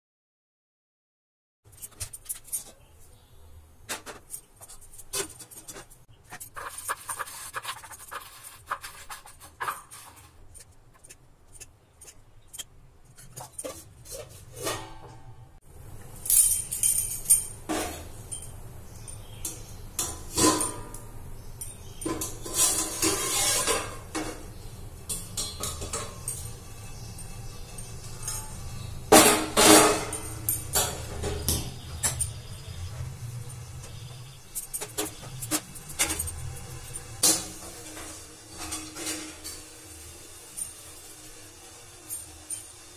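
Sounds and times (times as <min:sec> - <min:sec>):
steel cookware clanking: 0:03.9 - 0:15.4, 0:16.2 - 0:42.9
bangles jingling: 0:16.2 - 0:17.7.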